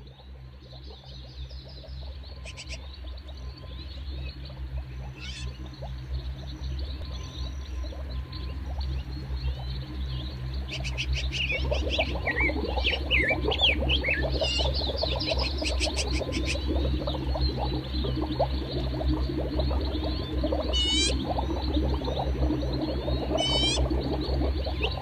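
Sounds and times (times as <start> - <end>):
steady low hum: 0.0 - 25.0
gliding chirping calls: 2.4 - 2.9, 5.1 - 5.6, 10.6 - 16.6, 20.7 - 21.2, 23.3 - 23.9
frog-like croaking: 20.7 - 21.2, 23.4 - 23.8.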